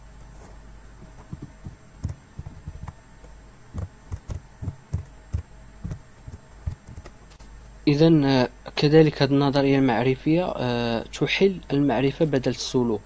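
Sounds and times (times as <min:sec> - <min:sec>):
steady electrical hum: 0:00.0 - 0:13.0
stylus tapping on tablet: 0:01.3 - 0:03.0, 0:03.7 - 0:07.1.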